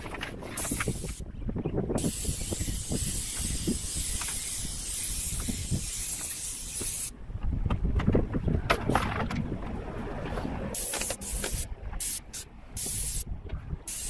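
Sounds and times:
paint spray gun hissing: 2.0s - 7.1s, 10.8s - 13.2s.

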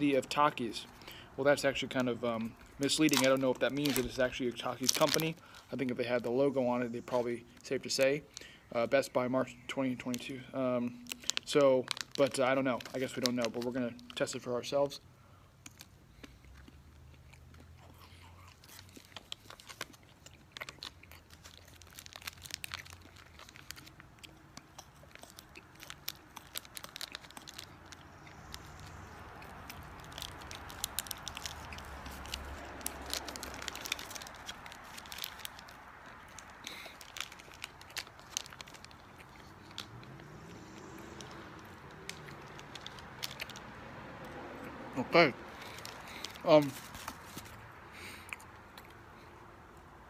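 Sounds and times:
plastic wrapper crinkling and tearing: 0.0s - 9.2s, 10.0s - 15.0s, 15.6s - 44.4s, 45.4s - 47.7s
meat stick being bitten and chewed: 15.6s - 44.8s.

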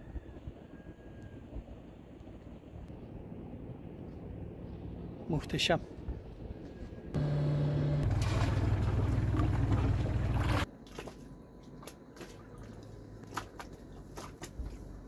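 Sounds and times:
low hum: 5.9s - 15.0s
boat motor running: 7.2s - 10.7s
water rushing: 7.5s - 10.7s.

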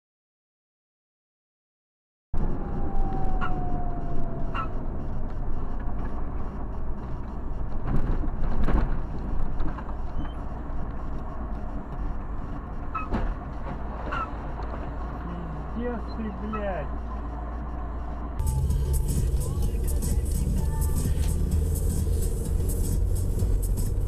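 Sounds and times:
vehicle driving in traffic: 2.4s - 24.0s.

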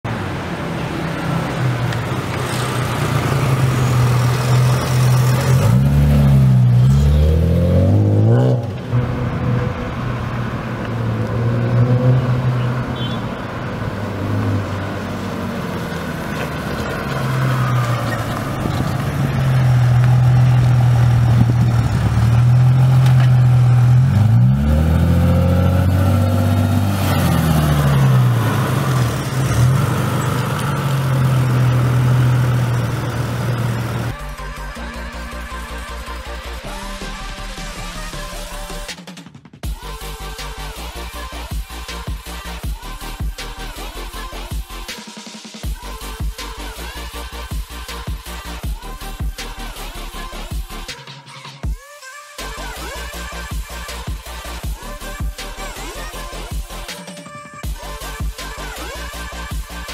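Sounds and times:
car engine driving by: 0.0s - 38.9s.

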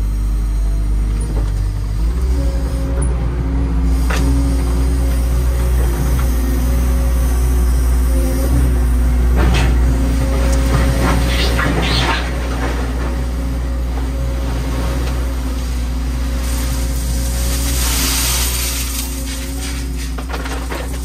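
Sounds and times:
excavator engine running: 0.0s - 21.0s.

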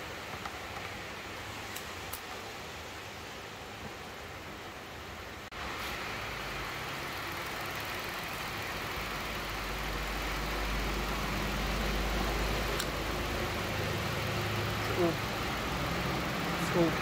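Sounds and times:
rain hissing: 0.0s - 17.0s
car engine idling: 6.2s - 17.0s.

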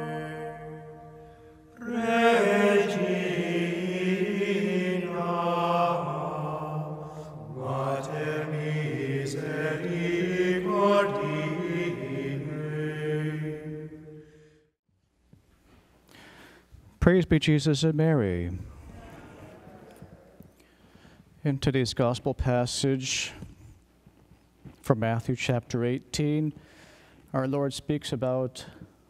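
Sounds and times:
slow sung chant: 0.0s - 14.8s.

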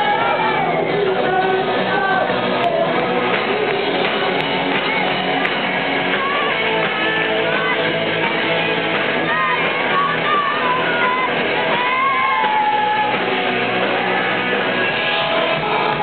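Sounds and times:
person singing: 0.0s - 8.0s, 9.2s - 13.3s
electric guitars: 0.0s - 16.0s
live rock band playing: 0.0s - 16.0s.

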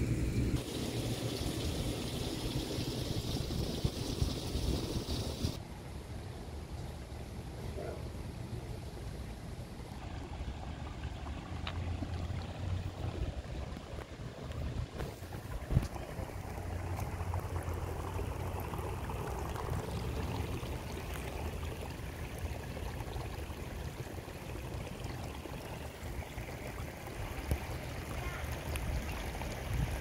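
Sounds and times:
flowing water: 0.0s - 5.6s, 8.9s - 30.0s
wind rumble on microphone: 1.4s - 5.6s, 10.7s - 16.6s, 28.7s - 30.0s.

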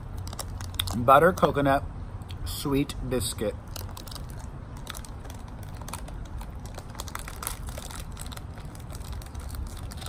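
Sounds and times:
low steady background rumble: 0.0s - 10.0s
plastic wrapper crinkling: 0.1s - 1.4s, 3.6s - 10.0s.

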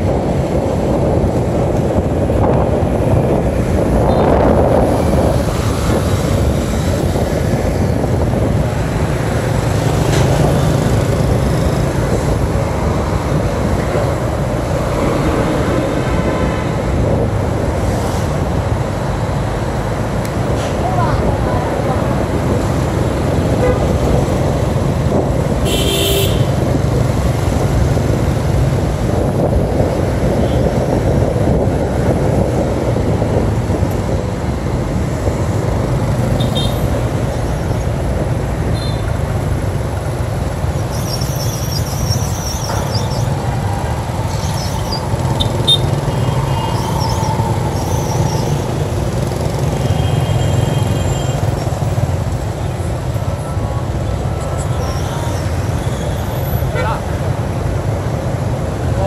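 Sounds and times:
vehicle horn toots: 25.6s - 26.6s.

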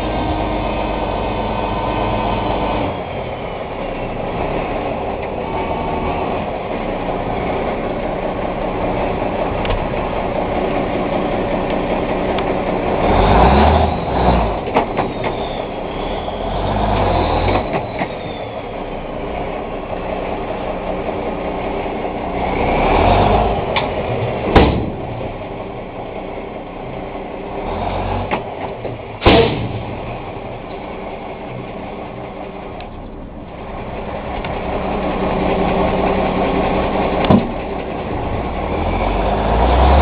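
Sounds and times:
diesel truck engine running: 0.0s - 40.0s
sharp knocks: 24.5s - 25.0s.

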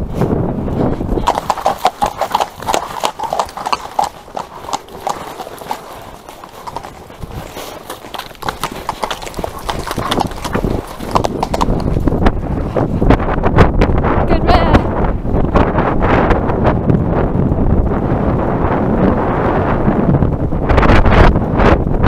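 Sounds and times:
wind rumble on microphone: 0.0s - 22.0s
horse hooves clip-clopping on tarmac: 0.9s - 13.0s.

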